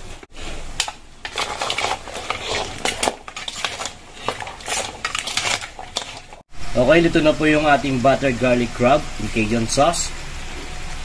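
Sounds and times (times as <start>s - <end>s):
spatula scraping a wok: 0.3s - 6.4s.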